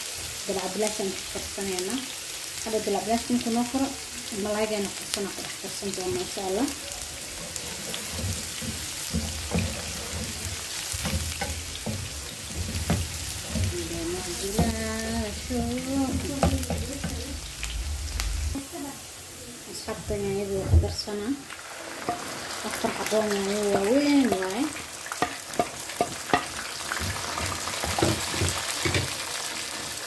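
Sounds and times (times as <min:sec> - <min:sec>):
onion sizzling in oil: 0:00.0 - 0:30.0
wooden spatula scraping pan: 0:05.4 - 0:17.4.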